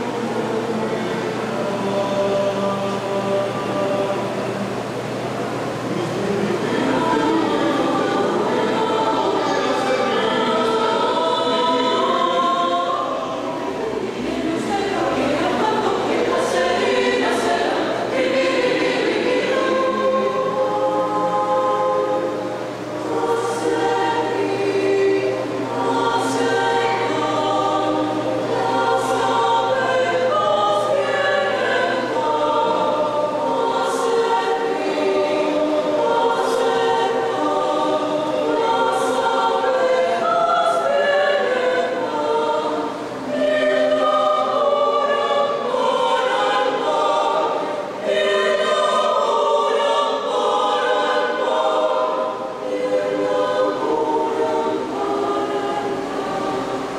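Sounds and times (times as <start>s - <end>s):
mixed choir singing: 0.0s - 56.9s.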